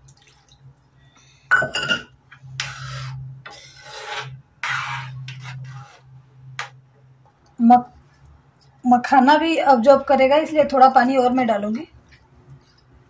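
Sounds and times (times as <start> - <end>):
metal ladle scraping iron pan: 2.6 - 6.1.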